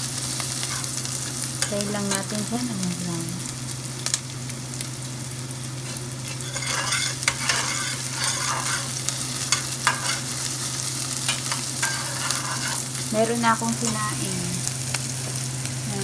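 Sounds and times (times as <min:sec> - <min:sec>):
onion sizzling in hot oil: 0:00.0 - 0:16.0
metal spatula scraping pan: 0:05.9 - 0:10.4, 0:11.3 - 0:13.0.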